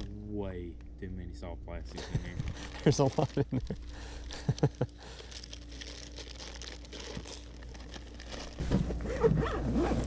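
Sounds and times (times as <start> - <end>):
plastic bags crinkling: 2.3 - 9.0.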